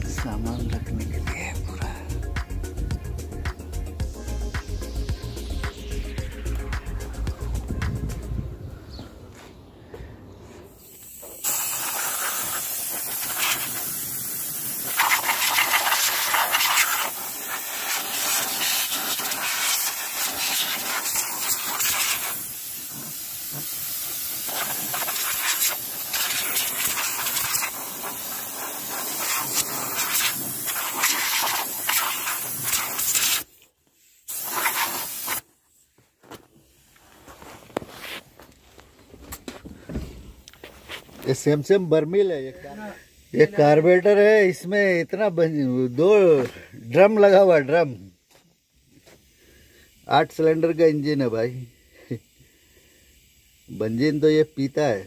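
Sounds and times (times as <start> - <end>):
loud hiss of air jet: 10.0 - 35.8, 39.7 - 47.6, 48.2 - 55.0.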